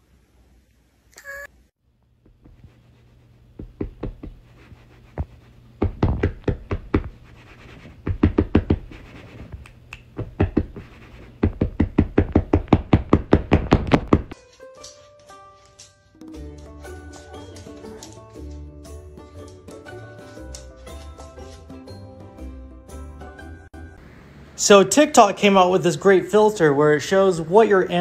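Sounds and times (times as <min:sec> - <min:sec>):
hand tapping on couch cushion: 0:02.2 - 0:02.8, 0:03.5 - 0:07.2, 0:07.9 - 0:14.4.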